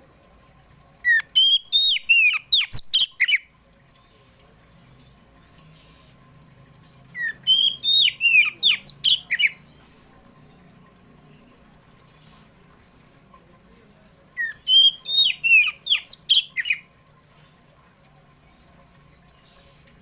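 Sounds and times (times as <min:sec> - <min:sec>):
bird singing whistled phrases: 0:01.1 - 0:03.4, 0:07.2 - 0:09.6, 0:14.4 - 0:16.8.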